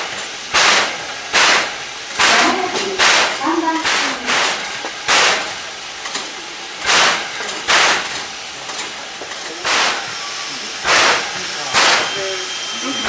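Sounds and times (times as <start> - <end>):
steam locomotive hissing puffs: 0.0 - 13.0.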